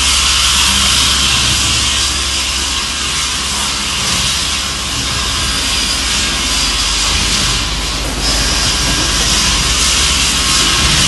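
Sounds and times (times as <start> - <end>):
circular saw running: 0.0 - 11.0
low hum: 0.0 - 11.0.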